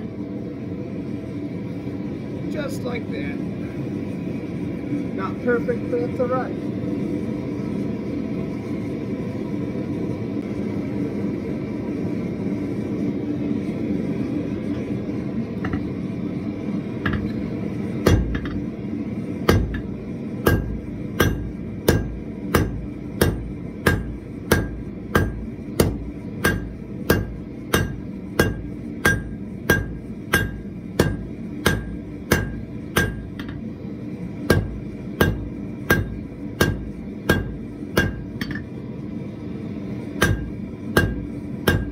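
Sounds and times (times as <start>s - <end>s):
gas burner rushing: 0.0s - 41.9s
hammer striking iron on anvil: 17.0s - 17.4s, 18.0s - 18.6s, 19.4s - 33.6s, 34.5s - 38.8s, 40.2s - 41.9s.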